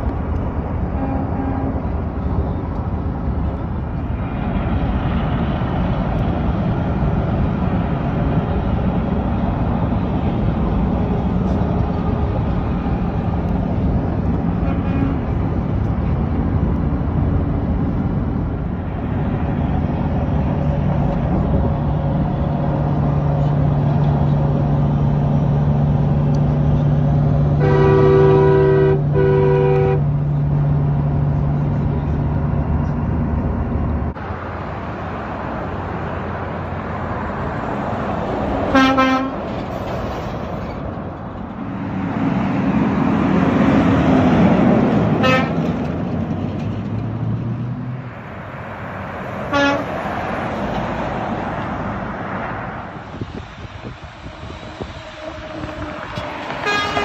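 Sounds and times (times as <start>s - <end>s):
highway road and engine noise: 0.0s - 57.0s
truck engine passing: 0.0s - 57.0s
truck air horn blasts: 0.9s - 1.9s, 14.6s - 15.4s, 27.6s - 30.1s, 38.7s - 39.4s, 45.2s - 45.7s, 49.5s - 50.0s, 55.1s - 57.0s.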